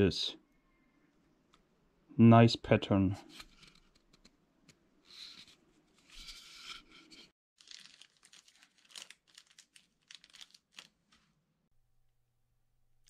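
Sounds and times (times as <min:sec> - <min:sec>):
faint crinkling and rustling: 0:05.1 - 0:11.5.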